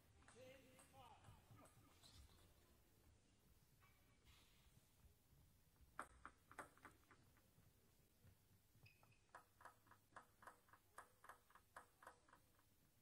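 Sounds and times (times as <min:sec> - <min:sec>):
table tennis ball bouncing: 0:00.1 - 0:02.0, 0:05.8 - 0:07.4, 0:08.8 - 0:13.0.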